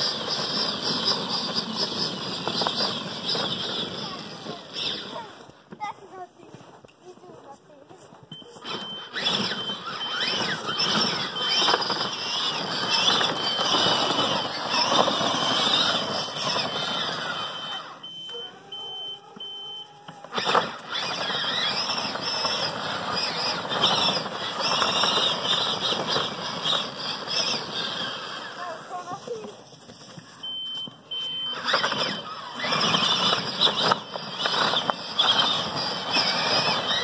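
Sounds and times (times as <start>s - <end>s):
toy truck motors whining: 0.0s - 6.0s, 8.3s - 37.0s
plow scraping snow: 0.0s - 37.0s
high regular beeping: 8.2s - 25.7s, 30.3s - 37.0s.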